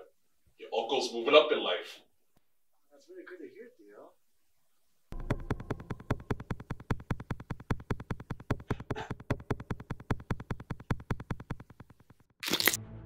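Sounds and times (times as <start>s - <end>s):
pulsing synthesizer music: 5.1s - 10.7s.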